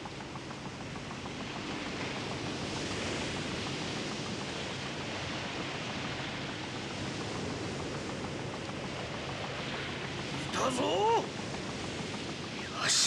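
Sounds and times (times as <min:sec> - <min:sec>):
waves surging and breaking: 0:09.7 - 0:11.3.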